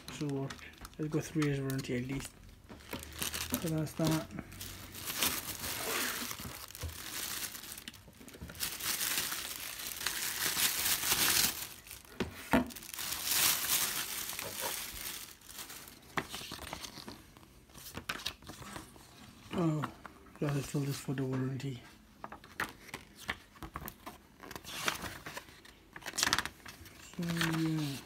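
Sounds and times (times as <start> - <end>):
plastic bag crinkling: 0.0 - 17.2, 26.0 - 28.0
paper rustling: 0.0 - 19.7, 22.2 - 28.0.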